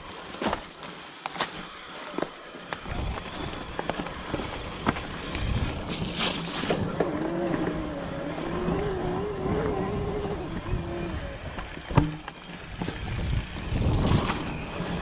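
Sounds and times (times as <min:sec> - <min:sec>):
bike rattles and knocks: 0:00.0 - 0:07.9, 0:09.5 - 0:15.0
electric motor whine: 0:00.0 - 0:15.0
tyre noise on dirt: 0:00.0 - 0:15.0
wind rumble on microphone: 0:04.9 - 0:15.0.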